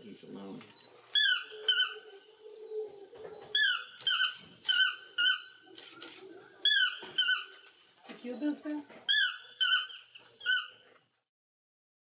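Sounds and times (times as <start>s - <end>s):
toucan yelping calls: 0.8s - 7.7s, 9.0s - 10.9s.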